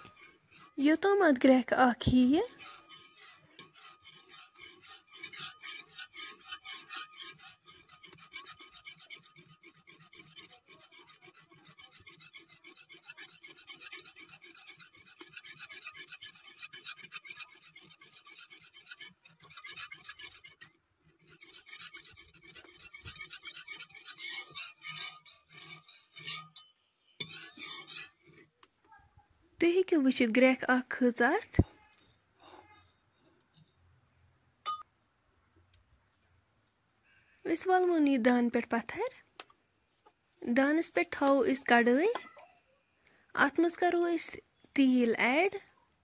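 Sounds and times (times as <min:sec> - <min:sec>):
metal spoon scraping pot: 0:00.0 - 0:28.6, 0:30.1 - 0:34.0.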